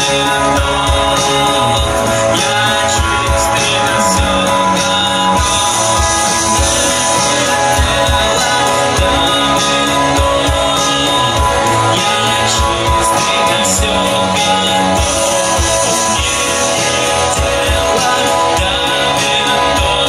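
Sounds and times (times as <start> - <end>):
drums: 0.0 - 20.0
electric guitar: 0.0 - 20.0
person singing into microphone: 0.0 - 20.0.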